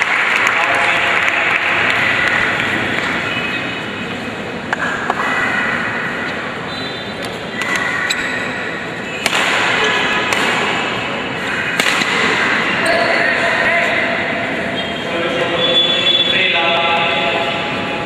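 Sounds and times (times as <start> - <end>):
crowd noise in a hall: 0.0 - 18.0
racquets striking shuttlecock: 4.6 - 5.3, 7.2 - 8.5, 9.1 - 12.7.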